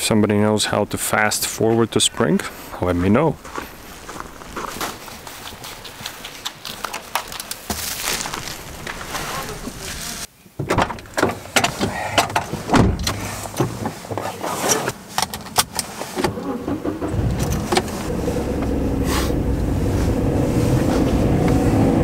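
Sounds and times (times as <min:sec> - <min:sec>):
bubble wrap crinkling: 0:04.0 - 0:10.3
car engine starting and running: 0:10.6 - 0:22.0.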